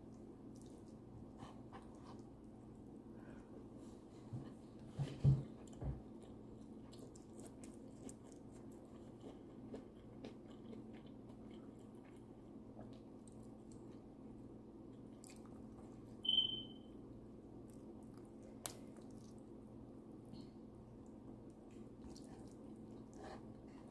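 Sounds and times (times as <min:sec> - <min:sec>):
soft wet clicks and squishes: 0:00.0 - 0:01.1, 0:17.6 - 0:19.5
low steady hum: 0:00.0 - 0:23.9
brief high-pitched tone: 0:16.2 - 0:16.8.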